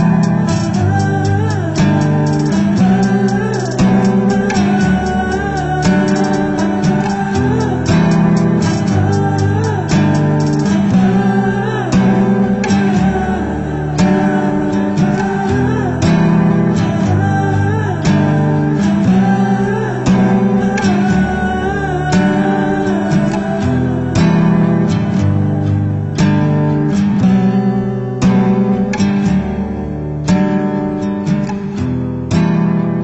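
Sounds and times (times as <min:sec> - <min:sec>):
strummed acoustic guitar music: 0:00.0 - 0:33.0.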